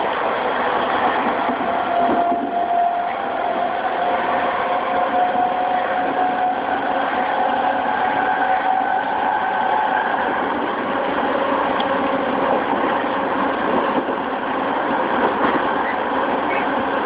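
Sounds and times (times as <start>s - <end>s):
train wheel and rail noise: 0.0s - 17.0s.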